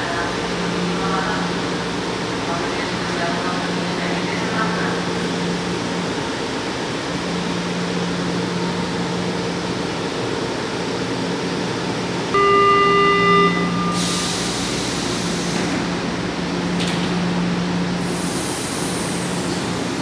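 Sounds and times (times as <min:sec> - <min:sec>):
train equipment humming: 0:00.0 - 0:20.0
door-closing warning tone: 0:12.3 - 0:14.7
compressed air hiss: 0:18.0 - 0:19.7.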